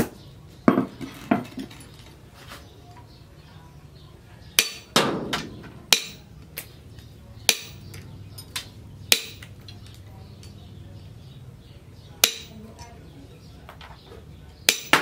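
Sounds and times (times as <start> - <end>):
machete chopping wire on metal: 4.5 - 6.8, 7.4 - 10.6, 12.2 - 13.0, 14.6 - 15.0.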